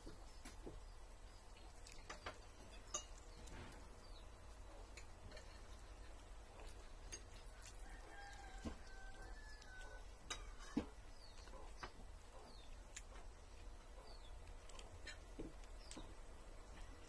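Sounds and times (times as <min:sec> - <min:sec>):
cutlery clinking on plates: 0:09.8 - 0:11.0.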